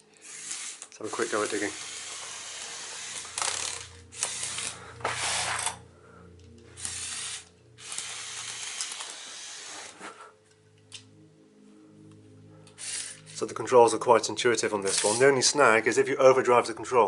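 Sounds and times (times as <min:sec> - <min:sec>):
toy motors and gears whirring: 0:00.0 - 0:05.8, 0:06.8 - 0:10.2, 0:12.8 - 0:13.4, 0:14.8 - 0:15.4.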